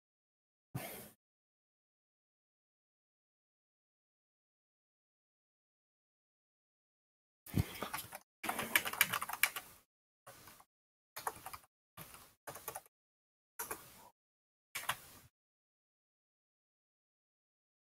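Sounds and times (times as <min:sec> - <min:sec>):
keyboard typing: 0:07.6 - 0:09.7, 0:11.2 - 0:12.9, 0:13.6 - 0:14.0, 0:14.8 - 0:15.1.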